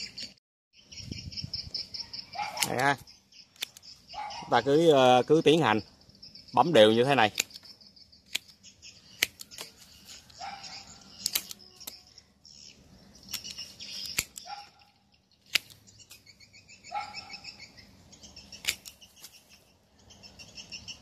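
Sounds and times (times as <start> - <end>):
birds chirping: 0.0 - 21.0
pruning shears snipping twigs: 2.4 - 4.0, 6.8 - 12.1, 13.2 - 16.4, 18.5 - 19.6.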